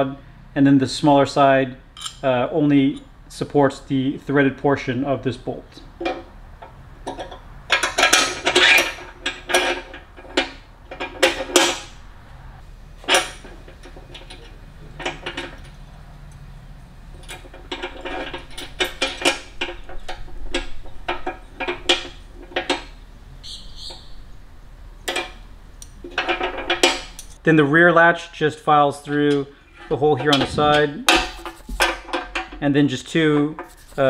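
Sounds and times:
small metal hardware clinking: 2.0s - 3.1s, 25.0s - 27.4s, 30.2s - 32.7s.

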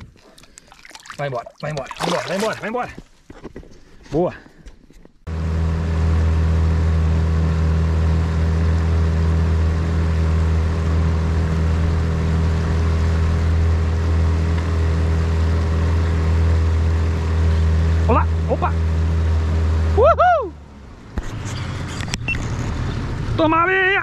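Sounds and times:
outboard motor running: 5.3s - 20.1s.

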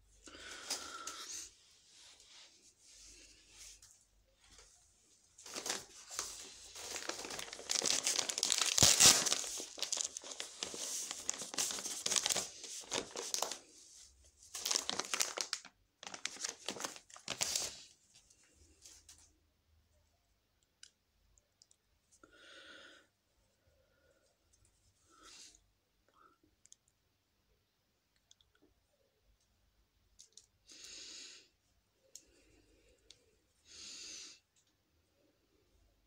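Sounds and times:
packaging crinkling and tearing: 5.4s - 13.7s, 14.5s - 17.9s.

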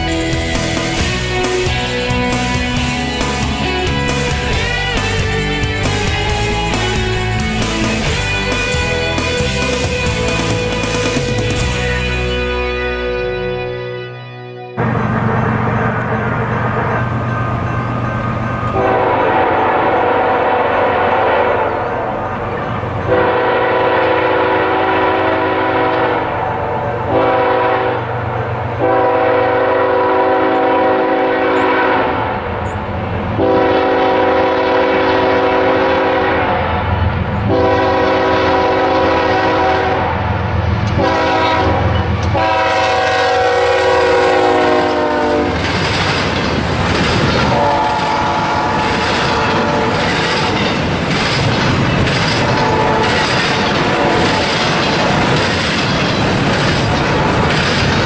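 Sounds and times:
freight cars rumbling and clattering: 0.0s - 12.5s, 14.8s - 27.3s, 44.0s - 58.0s
locomotive air horn blasts: 18.7s - 22.2s, 23.1s - 32.5s, 33.4s - 45.7s, 47.4s - 50.4s, 52.3s - 55.2s.

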